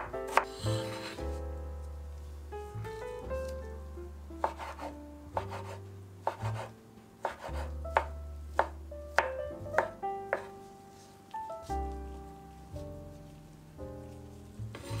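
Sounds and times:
background music with held notes: 0.0 - 15.0
knife chopping on wooden board: 4.4 - 10.5.

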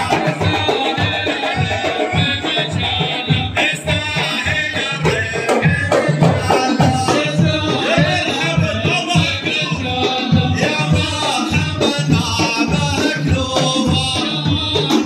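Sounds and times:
frame drums beating rhythm: 0.0 - 15.0
men singing together: 0.0 - 15.0.

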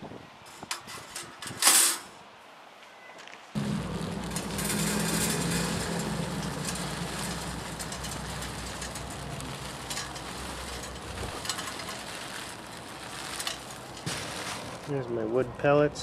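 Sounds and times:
steady low hum: 3.6 - 12.2
pellets pouring onto metal grate: 3.6 - 15.2.

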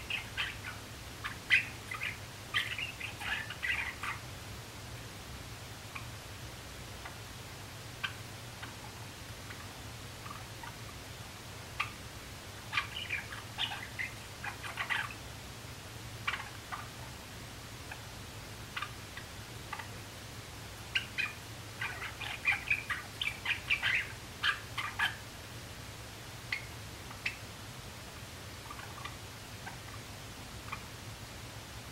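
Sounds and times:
steady low hum: 0.0 - 31.9
sparrow clicks and chirps: 20.9 - 25.2.

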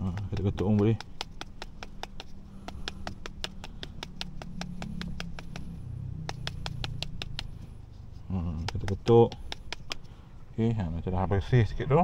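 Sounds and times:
filter knocking on concrete: 8.7 - 10.0.

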